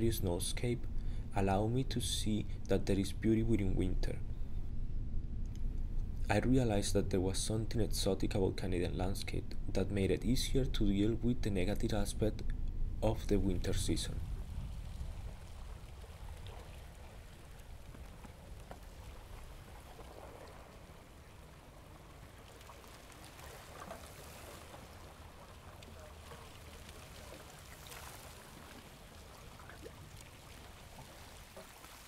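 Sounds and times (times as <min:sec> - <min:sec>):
low rumble: 0:00.0 - 0:22.1
water lapping and trickling: 0:14.0 - 0:32.0.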